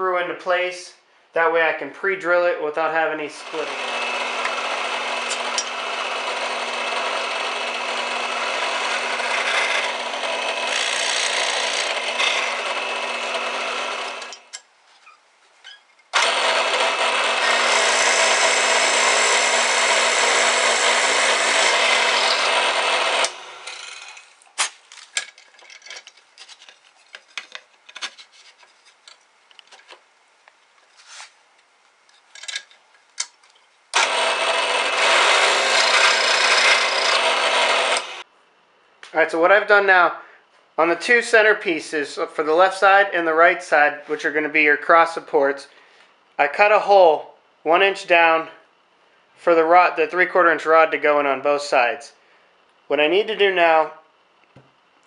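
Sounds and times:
drill press boring into wood: 0:03.4 - 0:14.5, 0:16.1 - 0:24.2, 0:33.9 - 0:38.2.

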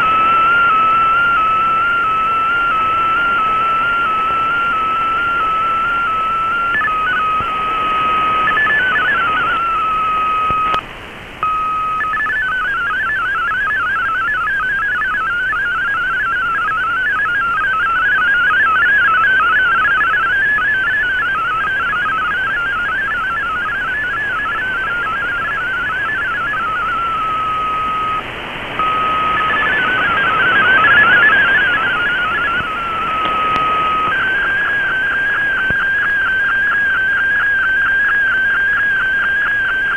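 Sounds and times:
warbling hopping data tones: 0:00.0 - 0:10.8, 0:11.4 - 0:39.9
radio static hiss: 0:00.0 - 0:39.9
steady radio tone: 0:00.0 - 0:39.9.

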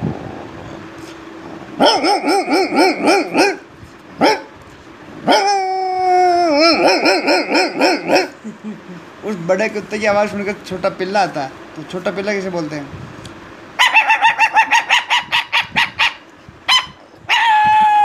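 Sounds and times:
man imitating dog whine: 0:01.7 - 0:03.6, 0:05.2 - 0:09.1, 0:17.3 - 0:18.0
man imitating dog yelps: 0:01.8 - 0:03.6, 0:05.2 - 0:08.4, 0:13.8 - 0:18.0.

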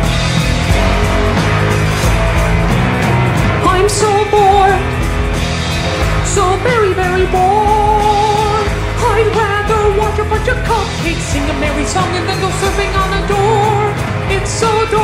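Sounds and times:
band with drums and cymbals: 0:00.0 - 0:15.0
person singing with vibrato: 0:03.4 - 0:05.2, 0:06.0 - 0:15.0.

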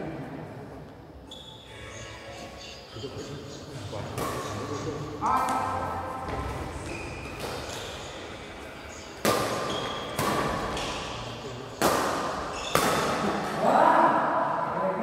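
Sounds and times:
badminton racket hitting shuttlecock: 0:09.2 - 0:11.1, 0:11.8 - 0:13.6.

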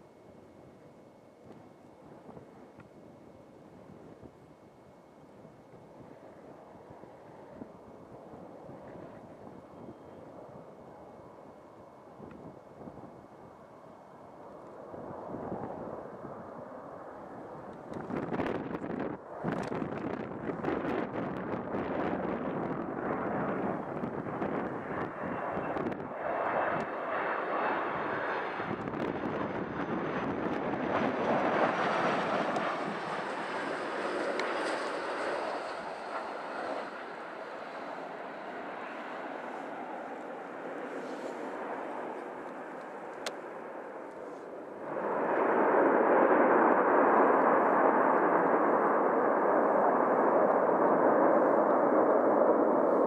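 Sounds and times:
jet airliner passing: 0:02.0 - 0:53.0
wind buffeting microphone: 0:14.8 - 0:37.2.

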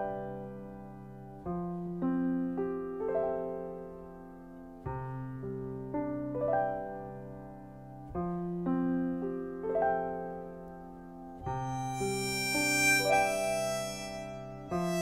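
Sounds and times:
gentle piano chords: 0:00.0 - 0:15.0.

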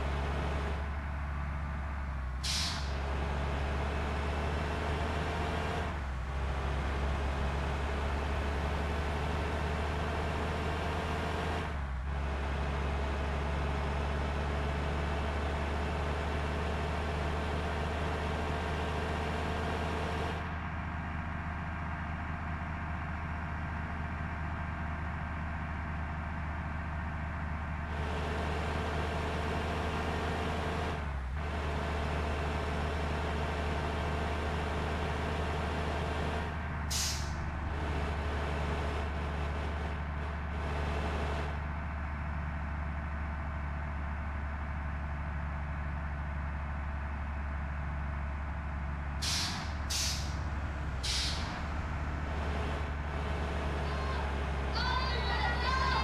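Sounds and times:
low mechanical drone: 0:35.1 - 0:56.0.

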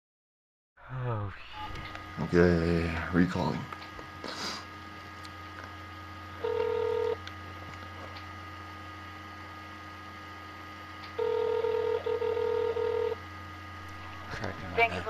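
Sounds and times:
steady low hum: 0:00.8 - 0:15.0
telephone ringback tone: 0:06.4 - 0:07.2, 0:11.2 - 0:13.2.

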